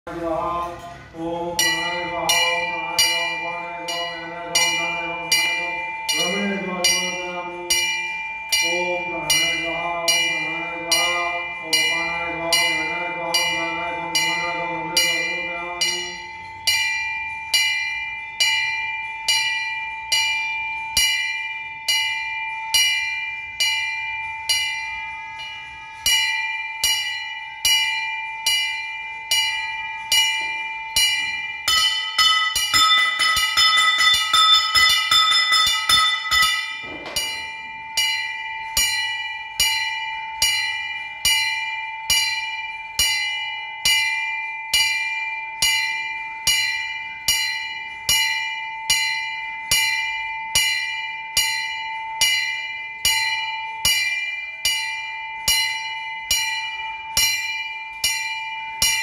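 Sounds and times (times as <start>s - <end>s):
temple bell ringing: 0.1s - 59.0s
bright bell rung rapidly: 1.6s - 59.0s.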